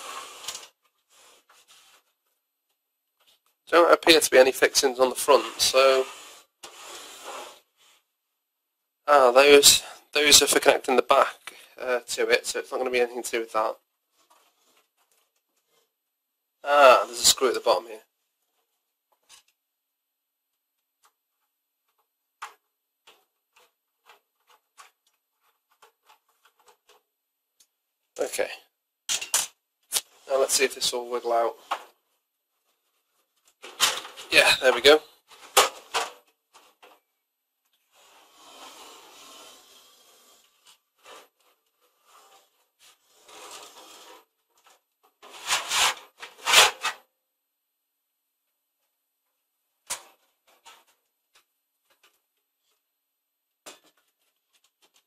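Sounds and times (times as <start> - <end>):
metal scraping on metal: 38.0 - 41.3, 42.0 - 44.3.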